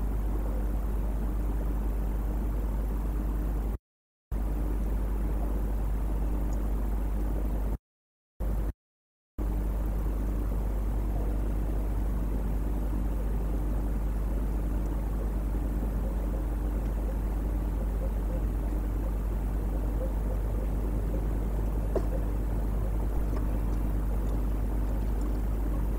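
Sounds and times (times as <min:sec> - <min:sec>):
low hum and hiss: 0:04.4 - 0:07.8, 0:09.4 - 0:25.9.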